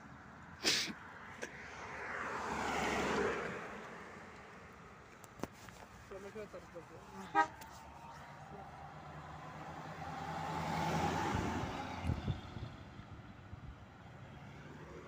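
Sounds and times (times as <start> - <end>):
car passing by: 1.2 - 4.7, 6.3 - 13.1, 14.2 - 15.0.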